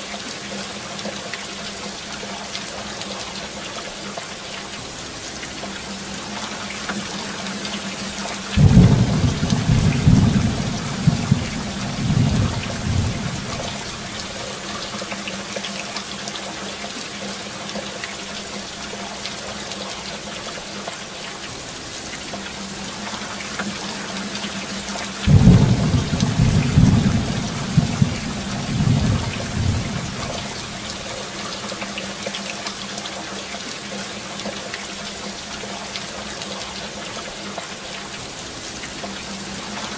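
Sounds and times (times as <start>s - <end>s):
steady rain: 0.0s - 39.9s
thunder rolling: 8.6s - 14.4s, 25.3s - 30.9s.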